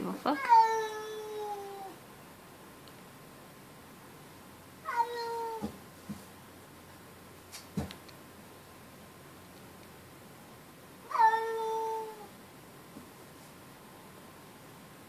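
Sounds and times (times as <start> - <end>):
cat meowing: 0.4 - 2.0, 4.8 - 5.8, 11.1 - 12.3.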